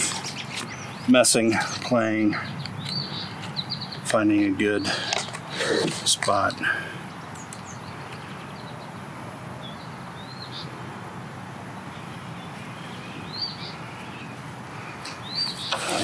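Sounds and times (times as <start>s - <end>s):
high bird chirps: 11.9s - 14.4s, 15.0s - 16.0s.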